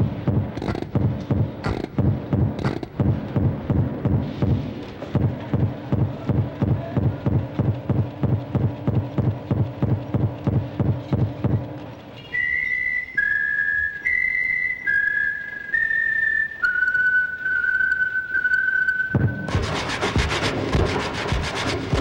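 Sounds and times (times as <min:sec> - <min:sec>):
low machine-like pulsing: 0:00.0 - 0:12.2
high whistle tones: 0:12.2 - 0:19.5.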